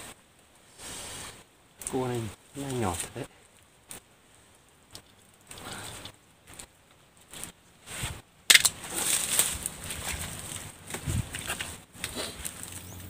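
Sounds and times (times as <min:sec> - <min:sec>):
dry leaves crackling and rustling: 0:06.4 - 0:13.0.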